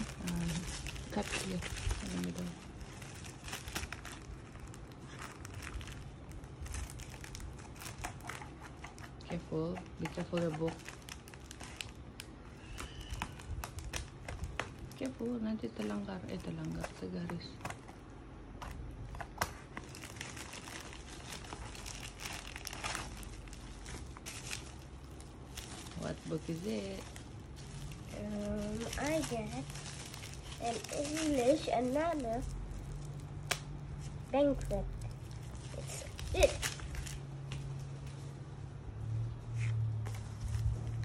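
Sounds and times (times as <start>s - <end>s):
plastic crinkling and rustling: 0.0s - 41.0s
scissors cutting plastic: 6.8s - 12.0s.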